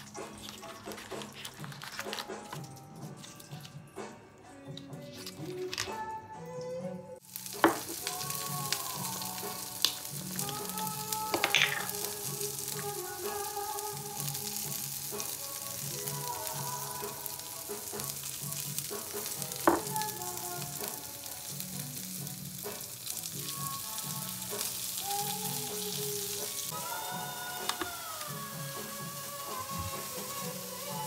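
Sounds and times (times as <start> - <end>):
background music: 0.0 - 31.0
asparagus sizzling in frying pan: 7.2 - 31.0.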